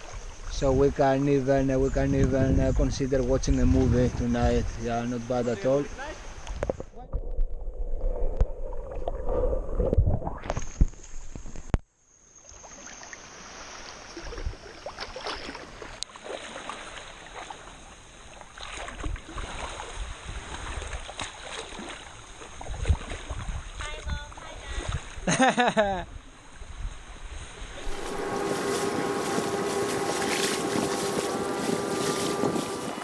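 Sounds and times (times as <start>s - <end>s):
seawater sloshing and splashing: 12.6s - 25.2s, 27.3s - 33.0s
splashing footsteps in water: 13.6s - 23.9s, 27.8s - 33.0s.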